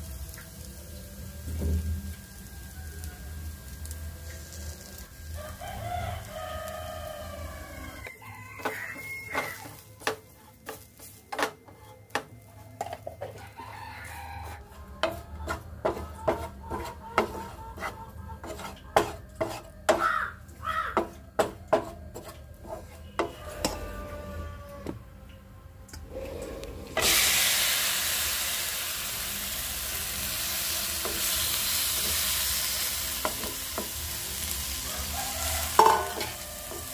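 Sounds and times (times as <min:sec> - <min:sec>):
wooden spatula scraping frying pan: 0:08.6 - 0:13.1, 0:14.4 - 0:20.0, 0:21.0 - 0:25.0
sharp knocks and scrapes: 0:15.0 - 0:20.0, 0:21.0 - 0:23.9.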